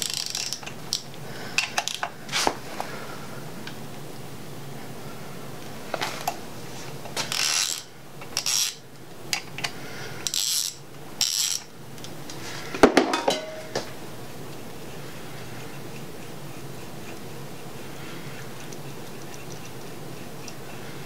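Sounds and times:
socket ratchet clicking: 0.0 - 1.0.

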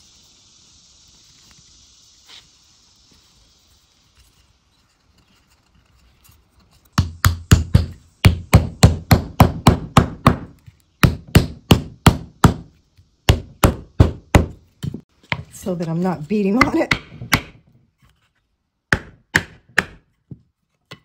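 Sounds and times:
hammer knocking on wood: 7.0 - 12.7, 13.3 - 15.5, 16.6 - 17.6, 18.9 - 21.0.

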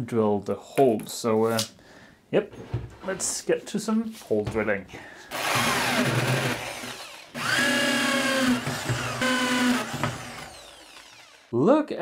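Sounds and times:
power drill hole saw cutting wood: 5.3 - 11.5.

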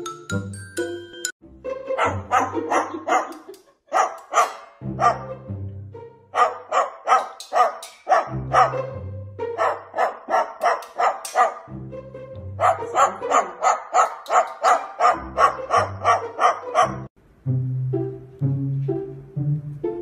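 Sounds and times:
dog-like yapping: 2.0 - 3.4, 4.0 - 5.3, 6.4 - 8.8, 9.6 - 11.7, 12.6 - 17.1
background music with bass: 4.8 - 6.4, 8.2 - 9.8, 11.7 - 13.4, 15.1 - 20.0.

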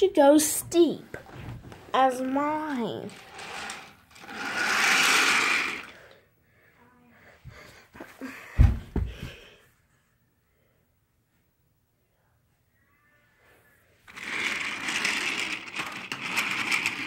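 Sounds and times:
microphone handling knocks and thumps: 8.6 - 9.4.

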